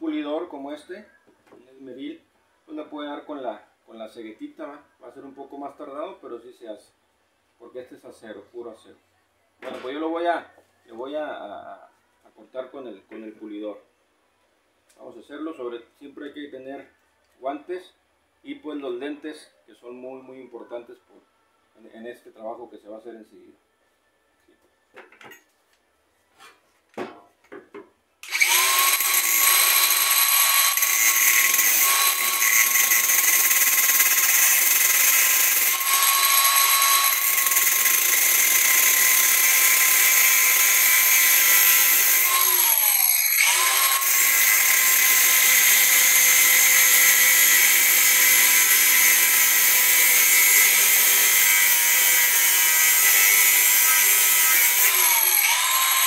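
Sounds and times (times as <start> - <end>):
angle grinder whining: 28.2 - 56.0.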